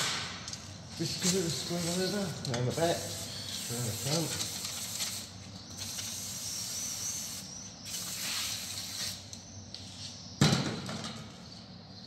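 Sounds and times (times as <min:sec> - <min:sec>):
aerosol spray hissing: 0:01.6 - 0:09.2.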